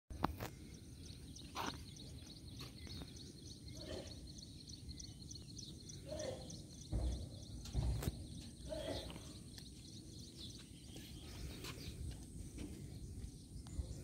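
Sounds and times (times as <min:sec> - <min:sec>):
faint high chirping: 0:00.3 - 0:12.2.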